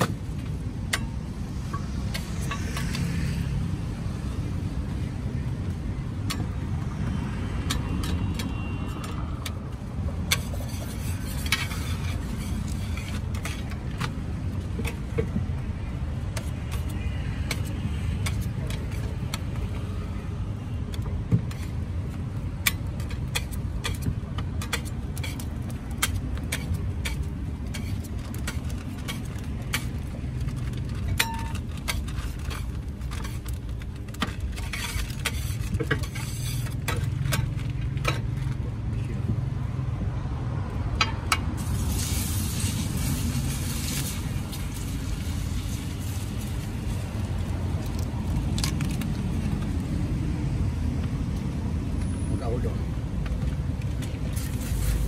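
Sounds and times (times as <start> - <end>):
metal spatula scraping griddle: 7.8 - 14.2, 22.7 - 33.6, 34.2 - 38.4, 41.3 - 47.1
egg sizzling on hot plate: 41.6 - 48.0.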